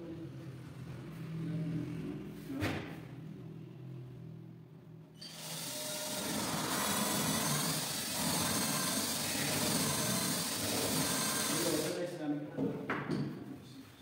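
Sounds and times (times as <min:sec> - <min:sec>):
power tool whirring: 0:05.2 - 0:12.0.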